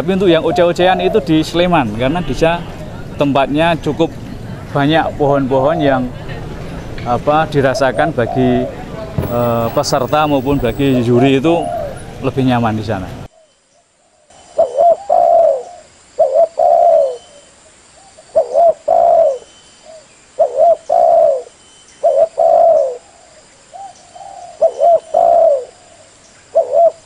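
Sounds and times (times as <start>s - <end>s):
doves cooing: 0.0s - 3.1s, 7.4s - 12.2s, 14.5s - 17.4s, 18.3s - 27.0s.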